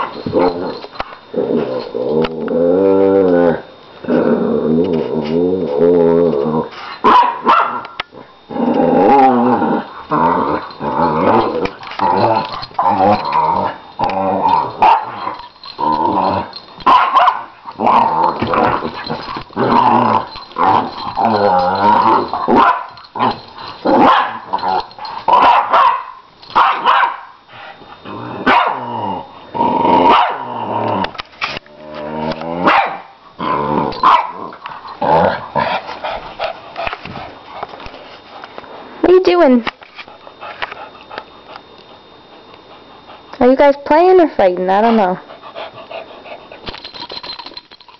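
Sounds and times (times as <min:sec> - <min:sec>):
dogs growling: 0:00.0 - 0:07.1, 0:07.7 - 0:25.6, 0:27.6 - 0:37.8
dogs barking: 0:07.0 - 0:08.0, 0:14.8 - 0:15.4, 0:16.8 - 0:17.6, 0:22.5 - 0:23.1, 0:24.0 - 0:24.6, 0:25.3 - 0:27.4, 0:28.4 - 0:28.8, 0:30.1 - 0:30.5, 0:32.6 - 0:33.1, 0:34.0 - 0:34.4.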